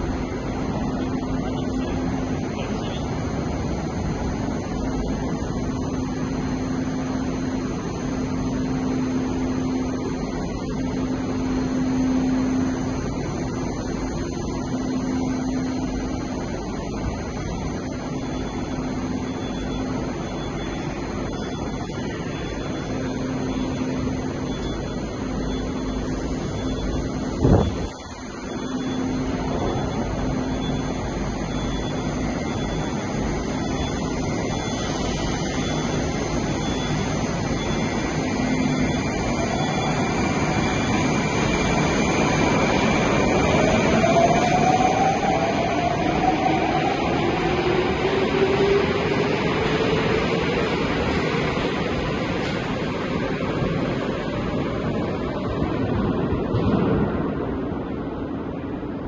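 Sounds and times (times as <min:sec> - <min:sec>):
faint hum: 0:00.0 - 0:46.2
metro platform rumble: 0:00.0 - 0:59.0.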